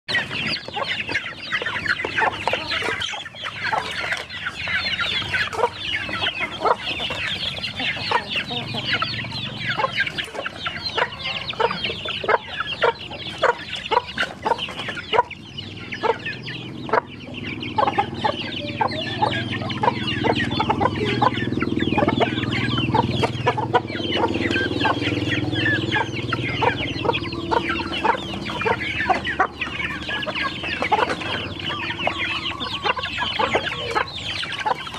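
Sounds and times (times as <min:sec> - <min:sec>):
chicks peeping: 0:00.1 - 0:34.9
hens clucking: 0:00.1 - 0:34.9.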